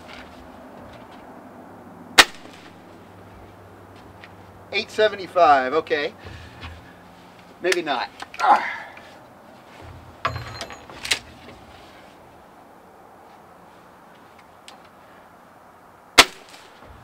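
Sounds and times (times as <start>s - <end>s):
air rifle shot: 2.2s - 2.7s, 16.2s - 16.7s
rifle handling rattle and click: 10.3s - 11.6s.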